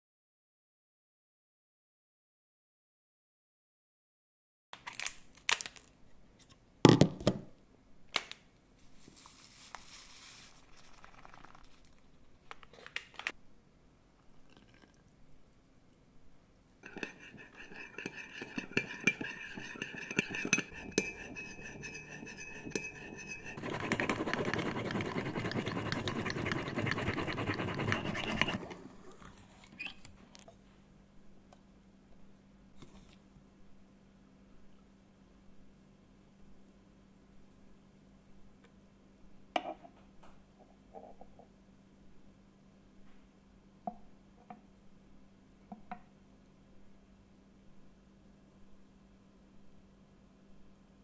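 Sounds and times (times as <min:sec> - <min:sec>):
spoon clinking on cup: 0:16.8 - 0:25.0
spoon whipping coffee in cup: 0:16.8 - 0:28.8.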